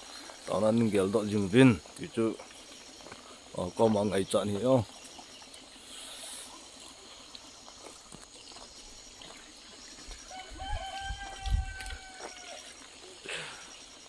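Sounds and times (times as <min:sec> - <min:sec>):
faint outdoor hiss: 0:00.0 - 0:14.0
rooster crowing: 0:10.3 - 0:12.8.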